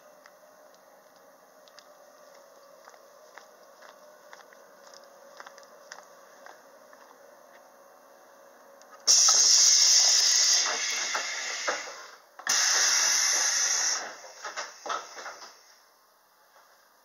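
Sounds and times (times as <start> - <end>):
compressed air hissing: 9.0 - 15.8.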